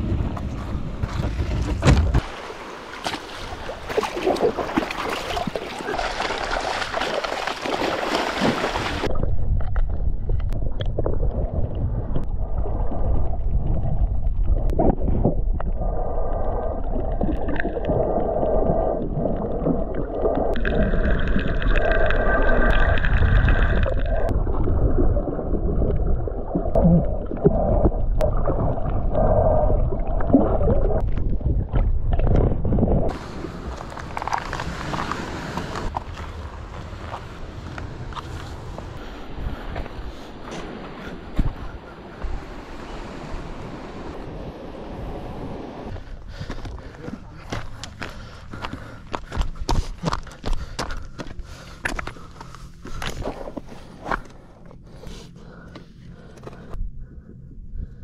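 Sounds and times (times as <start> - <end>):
underwater gurgle and rumble: 0.0 - 7.4, 8.1 - 58.0
sea noise: 0.0 - 49.1
wind: 0.0 - 58.0.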